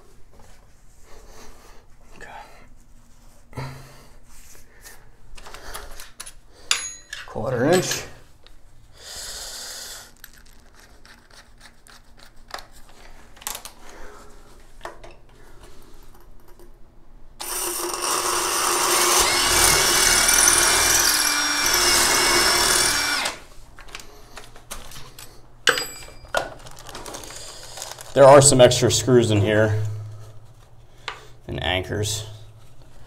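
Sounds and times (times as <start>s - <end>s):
cordless drill drilling into tile: 17.4s - 23.5s.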